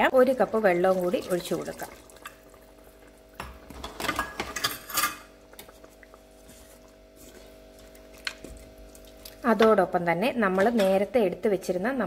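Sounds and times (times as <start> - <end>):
metal kitchenware clinking on a pot: 4.0 - 5.3.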